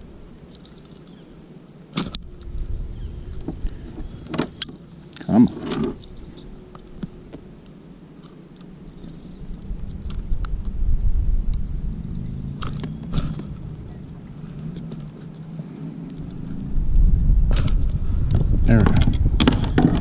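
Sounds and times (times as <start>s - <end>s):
low handling rumble: 8.7s - 20.0s.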